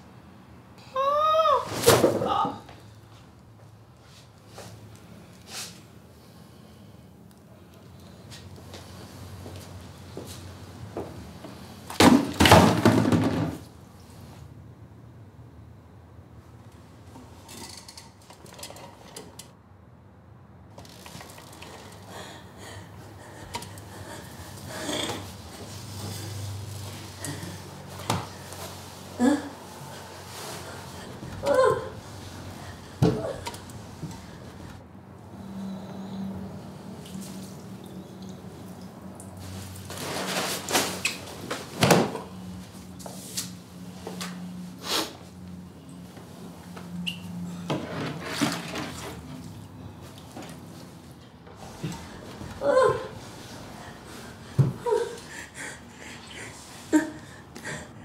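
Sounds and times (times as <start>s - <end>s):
objects rustling and knocking: 10.1s - 13.7s, 47.6s - 52.6s
wheelchair clicks and creaks: 16.7s - 19.6s, 20.7s - 22.3s, 23.3s - 28.8s, 33.0s - 34.8s, 46.6s - 53.1s.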